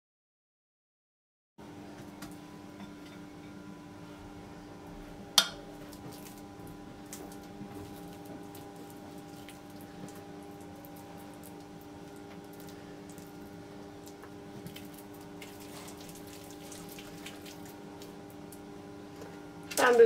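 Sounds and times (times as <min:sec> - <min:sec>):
steady background hum: 0:01.6 - 0:20.0
hands squishing dough: 0:05.8 - 0:18.7.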